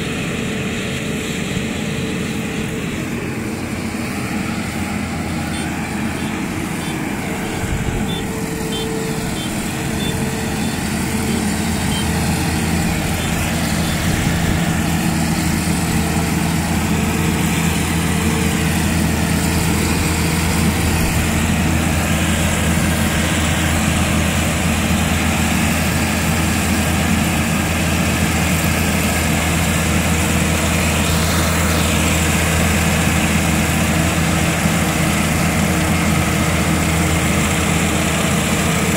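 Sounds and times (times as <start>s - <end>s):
combine harvester engine hum: 0.0s - 38.9s.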